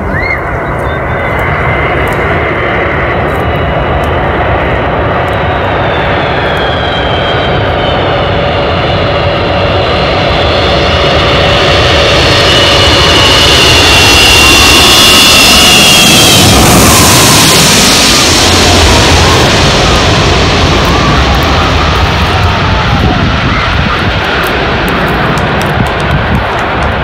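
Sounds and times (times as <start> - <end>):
jet engines roaring and whining: 0.0 - 27.0.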